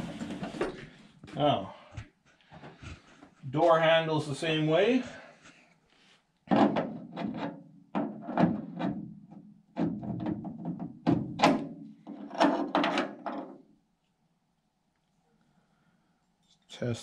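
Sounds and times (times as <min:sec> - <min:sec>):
metal door handle clunks and clicks: 0:09.8 - 0:13.6.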